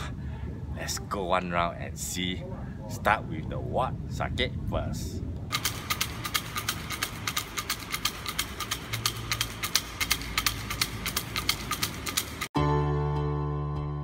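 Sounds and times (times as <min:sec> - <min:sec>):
sticks rattling in a cup: 0:05.5 - 0:12.5.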